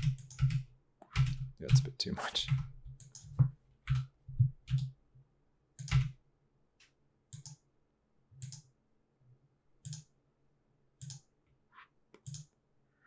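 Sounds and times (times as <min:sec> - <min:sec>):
keyboard and mouse clicks: 0:00.0 - 0:04.9, 0:05.8 - 0:06.2, 0:06.8 - 0:07.6, 0:08.4 - 0:08.7, 0:09.8 - 0:10.1, 0:11.0 - 0:11.3, 0:12.1 - 0:12.6.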